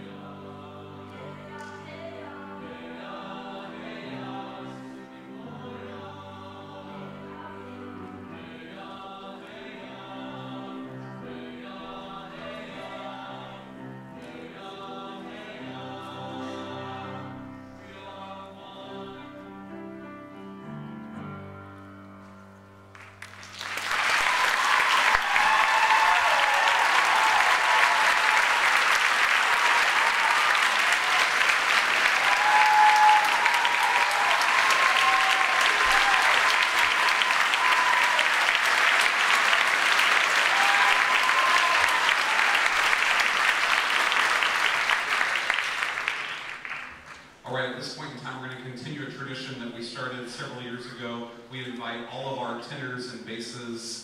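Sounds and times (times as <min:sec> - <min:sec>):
male choir with piano: 0:00.0 - 0:22.5, 0:24.2 - 0:45.5
audience applause: 0:22.9 - 0:47.4
audience cheering: 0:23.5 - 0:47.0.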